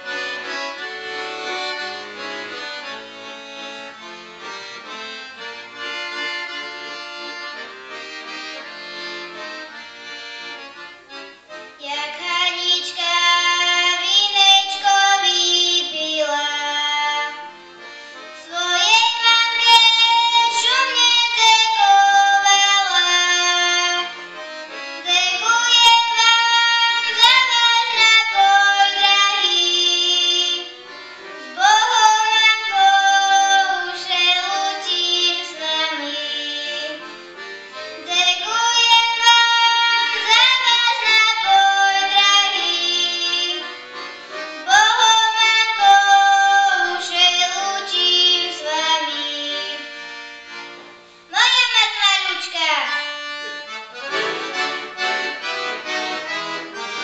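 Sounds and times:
piano accordion: 0:00.0 - 0:57.0
girl singing: 0:11.8 - 0:17.6, 0:18.4 - 0:24.2, 0:25.0 - 0:30.8, 0:31.4 - 0:37.1, 0:38.0 - 0:43.8, 0:44.6 - 0:50.0, 0:51.3 - 0:53.1.

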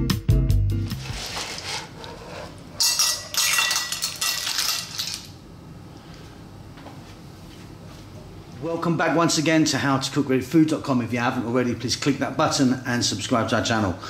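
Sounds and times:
clam shells clattering in a dish: 0:02.8 - 0:05.4.

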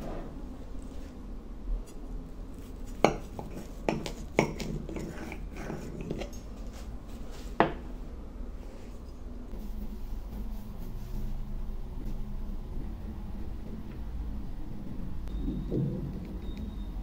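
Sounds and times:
knife scraping a ceramic plate: 0:02.8 - 0:06.4.

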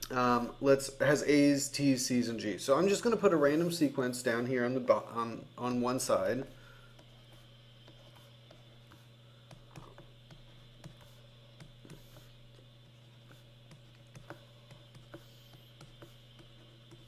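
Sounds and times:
steady low hum: 0:00.0 - 0:17.0
stylus tapping on drawing tablet: 0:09.5 - 0:12.3.

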